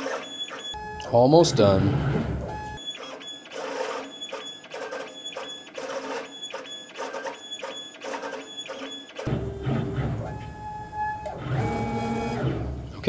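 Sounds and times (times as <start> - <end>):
stepper motor whine: 9.3 - 13.0.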